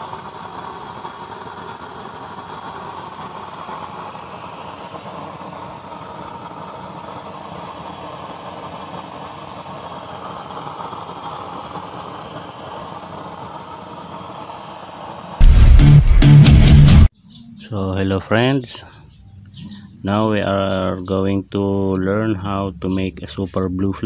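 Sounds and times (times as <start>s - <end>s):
oil burner rushing: 0.0s - 17.1s.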